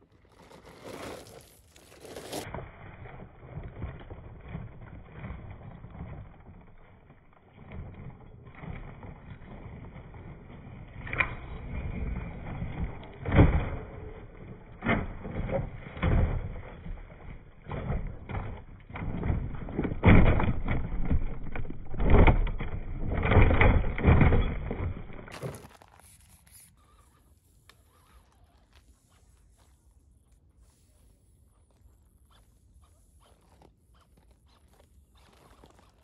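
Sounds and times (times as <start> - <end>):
toy truck rumbling: 0.0 - 29.6
chassis and wheels knocking: 2.5 - 25.4.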